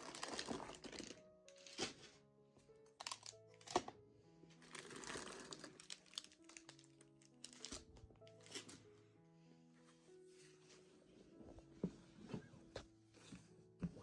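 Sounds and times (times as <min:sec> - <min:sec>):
plastic packaging crinkling: 0:00.0 - 0:02.0, 0:02.9 - 0:03.9, 0:04.6 - 0:08.7
soft background music: 0:00.0 - 0:14.0.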